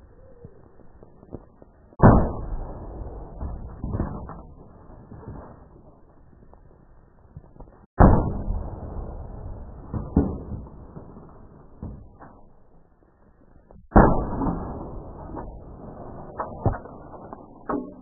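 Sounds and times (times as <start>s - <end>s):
rattle of bent metal and debris: 13.9s - 18.0s.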